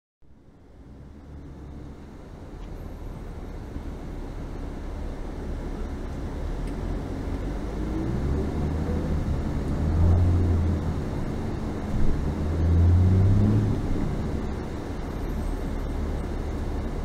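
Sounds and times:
vehicle engine rumbling: 0:00.3 - 0:17.0.

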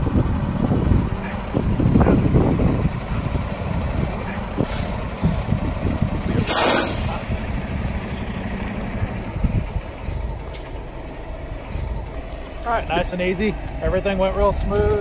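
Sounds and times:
diesel truck engine rumbling: 0:00.0 - 0:15.0
air brakes hissing: 0:04.6 - 0:05.6, 0:06.4 - 0:07.3, 0:10.0 - 0:10.5, 0:11.6 - 0:12.1.

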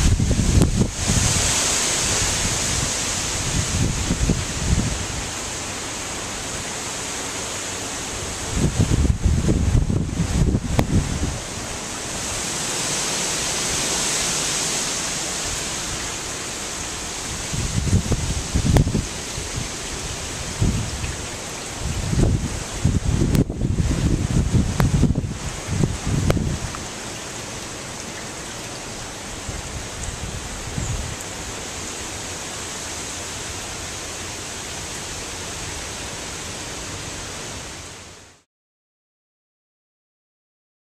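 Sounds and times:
wind buffeting microphone: 0:00.0 - 0:05.4, 0:08.3 - 0:12.4, 0:17.2 - 0:27.0, 0:28.6 - 0:31.4
wind and driving rain: 0:00.0 - 0:38.5.

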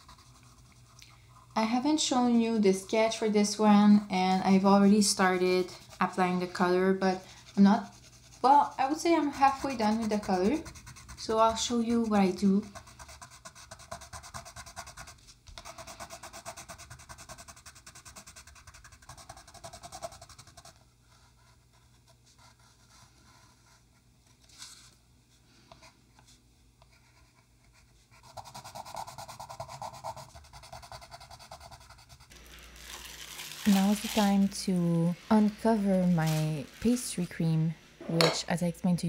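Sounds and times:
pencil scratching on paper: 0:00.0 - 0:03.2, 0:03.8 - 0:23.8, 0:26.8 - 0:32.3.

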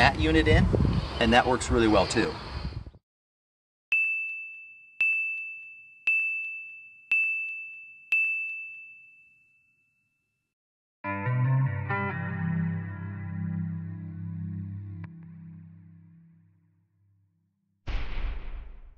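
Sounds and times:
guitar music: 0:11.0 - 0:16.6.

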